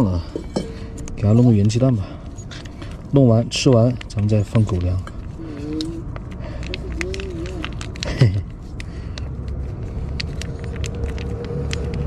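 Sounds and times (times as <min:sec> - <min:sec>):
low vehicle rumble: 0:00.0 - 0:12.0
foil pouch crinkling: 0:02.6 - 0:12.0.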